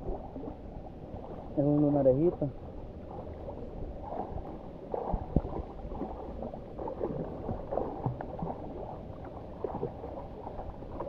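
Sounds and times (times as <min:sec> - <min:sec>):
sea water sloshing against rocks: 0:00.0 - 0:11.0.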